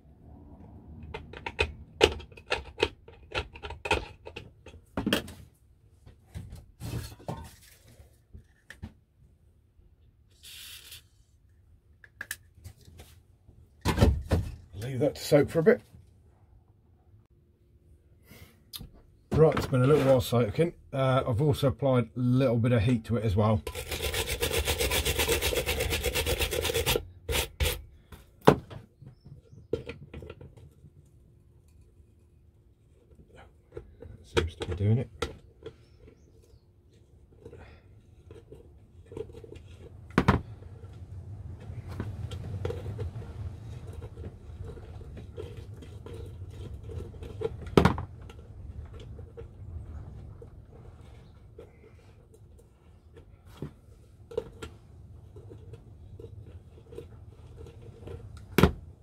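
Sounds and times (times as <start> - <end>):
tools clicking and knocking: 1.0 - 5.4
stiff brush scrubbing metal: 22.7 - 27.9
screwdriver scraping on rusted metal: 23.6 - 27.8.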